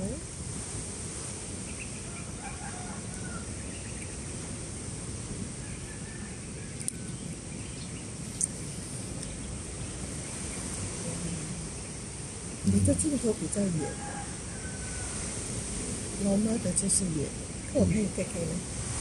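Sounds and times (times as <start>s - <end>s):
steady background hiss: 0.0s - 19.0s
faint bird chirps: 1.6s - 5.0s, 5.6s - 15.1s.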